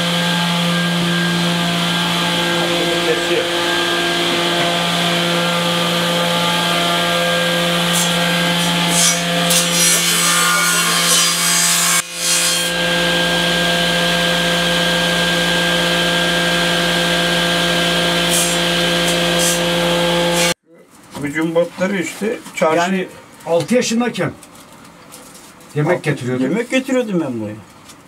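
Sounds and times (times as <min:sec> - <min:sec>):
table saw motor hum: 0:00.0 - 0:20.6
wood cut against saw blade: 0:00.0 - 0:20.6.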